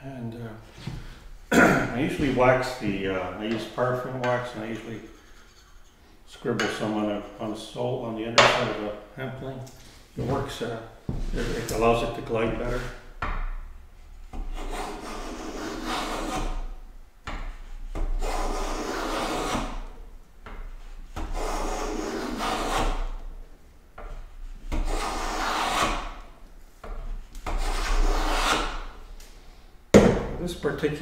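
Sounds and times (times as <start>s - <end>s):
hand plane rasping on wood: 14.4s - 16.6s, 18.2s - 19.7s, 21.2s - 23.1s, 24.7s - 26.1s, 27.4s - 28.8s.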